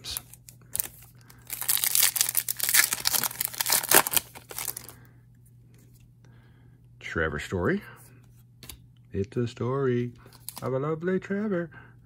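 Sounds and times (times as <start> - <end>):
foil wrapper crinkling and tearing: 0.0 - 5.0.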